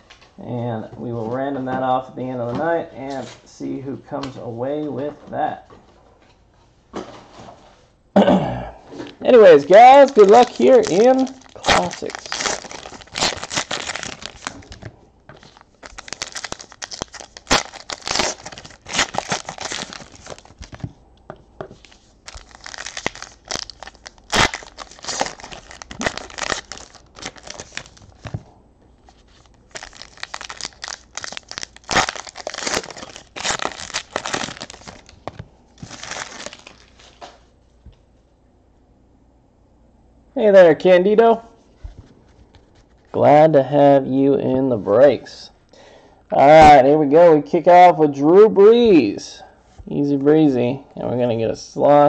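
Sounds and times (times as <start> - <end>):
card pack wrappers tearing and crinkling: 9.5 - 20.9, 21.8 - 28.4, 29.3 - 37.3
sharp wrapper snaps: 29.7 - 36.9.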